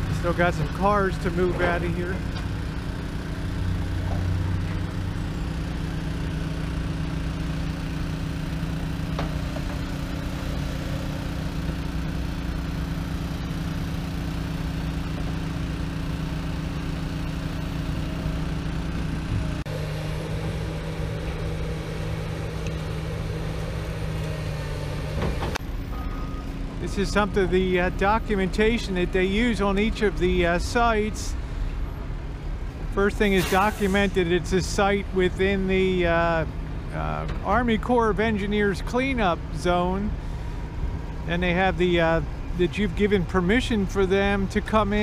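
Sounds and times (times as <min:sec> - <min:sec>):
heavy diesel engines droning: 0:00.0 - 0:45.0.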